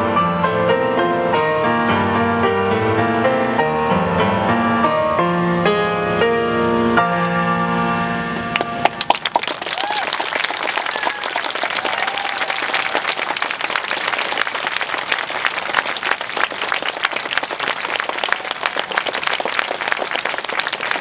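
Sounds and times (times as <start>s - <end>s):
audience applauding: 8.5s - 21.0s.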